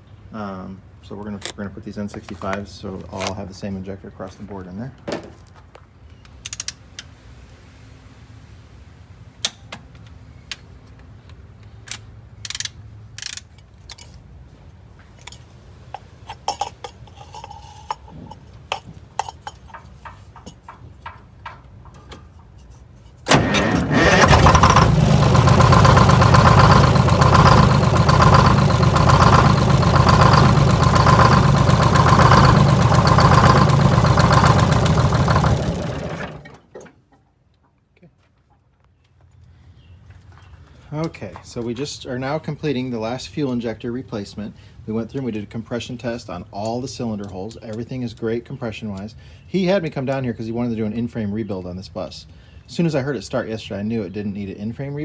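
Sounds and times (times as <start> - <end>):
hand tools clicking and knocking: 15.1 - 23.2
diesel engine running: 23.3 - 36.7.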